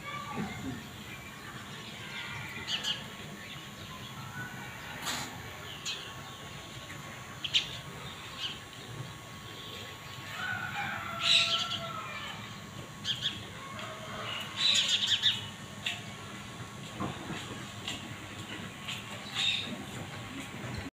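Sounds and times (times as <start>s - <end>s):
small birds chirping: 0.2s - 10.3s, 11.1s - 13.5s, 14.2s - 16.0s, 19.2s - 19.8s.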